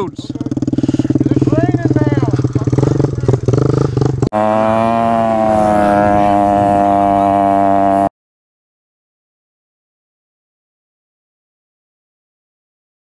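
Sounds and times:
motorbike engine running: 0.0 - 8.1.

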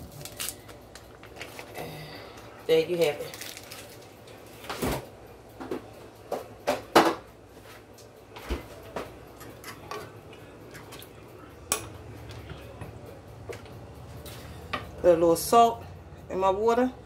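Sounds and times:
dishes and utensils clinking: 8.4 - 12.9.

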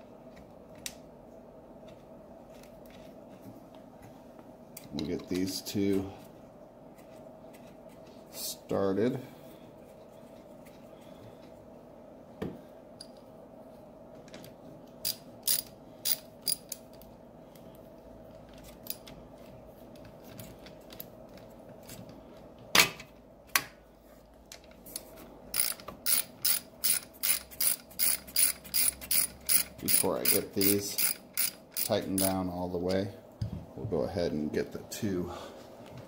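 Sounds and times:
socket ratchet clicking: 15.0 - 16.8, 25.5 - 32.4.

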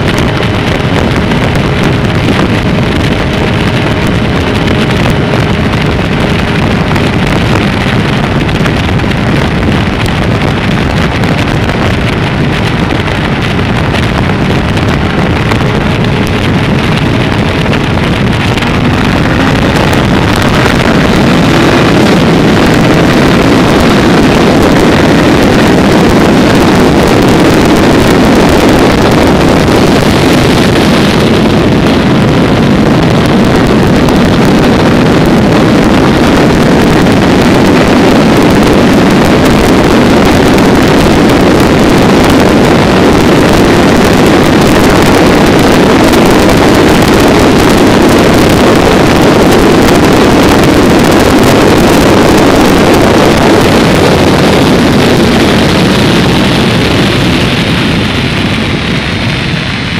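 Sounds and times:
vehicle road and engine noise: 0.0 - 59.9
wind rushing over microphone: 0.0 - 59.9.

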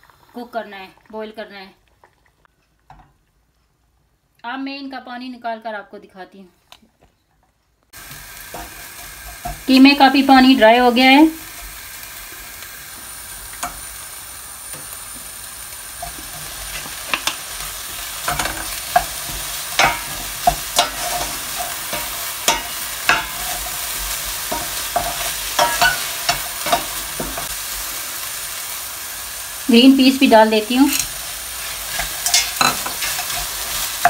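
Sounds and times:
meat sizzling in a pan: 8.0 - 34.0
spoon scraping a pan: 8.5 - 10.2, 16.0 - 27.6, 30.8 - 34.0.

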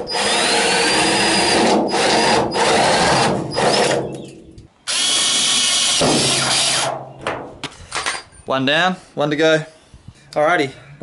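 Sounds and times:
drill boring through sheet metal: 0.0 - 4.1, 4.9 - 6.9.

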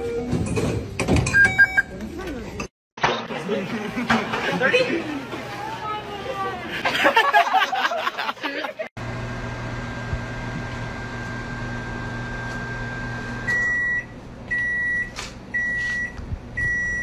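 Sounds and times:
electronic beep: 1.3 - 1.9
microwave oven humming: 9.0 - 15.0.

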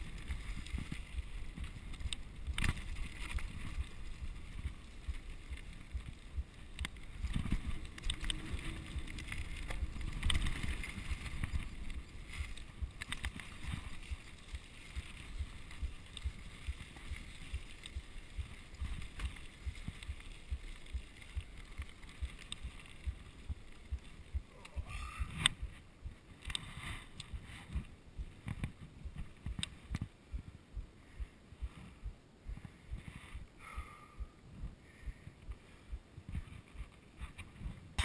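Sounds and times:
bike rattling and clicking: 0.0 - 24.5
tyres crunching over dirt: 0.0 - 24.6
wind buffeting microphone: 0.0 - 26.4.

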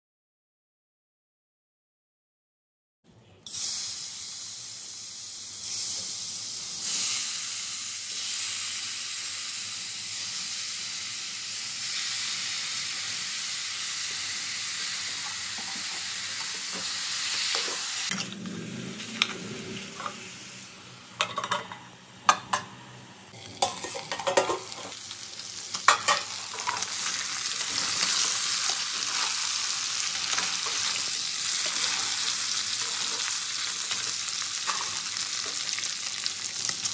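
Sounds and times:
meat sizzling in a pan: 3.5 - 18.1, 23.4 - 36.9
metal spoon scraping a pan: 25.7 - 35.6.

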